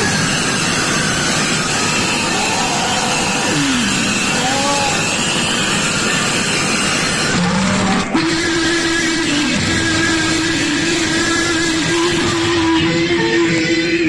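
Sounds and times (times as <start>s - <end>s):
distorted devotional music: 7.3s - 14.0s.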